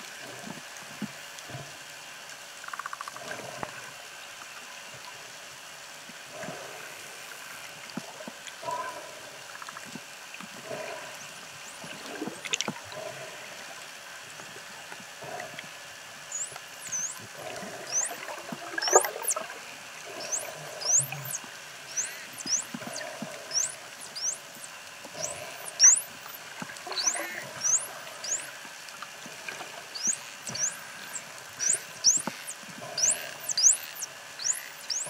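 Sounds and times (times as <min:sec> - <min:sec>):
water hiss: 0:00.0 - 0:35.0
faint clicks: 0:00.4 - 0:03.8
dolphins whistling underwater: 0:16.3 - 0:28.6, 0:29.9 - 0:35.0.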